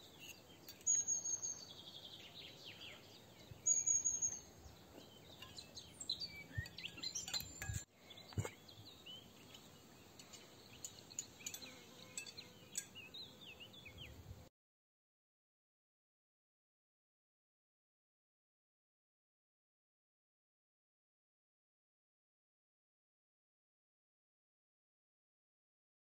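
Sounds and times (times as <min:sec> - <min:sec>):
birds chirping and singing: 0:00.0 - 0:14.3
cutlery clinking on plates: 0:06.7 - 0:08.6, 0:10.2 - 0:13.1.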